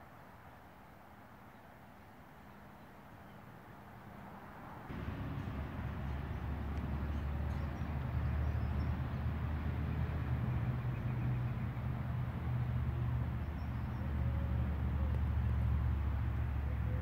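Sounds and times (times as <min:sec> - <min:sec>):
road noise: 0:00.1 - 0:17.0
vehicle engine humming: 0:04.9 - 0:17.0.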